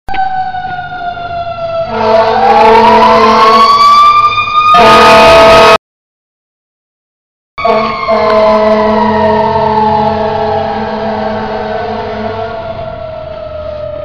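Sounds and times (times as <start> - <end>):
fire engine siren winding: 0.1 - 5.8, 7.6 - 14.0
steady horn tone: 1.9 - 3.8, 4.7 - 5.8, 7.6 - 12.6.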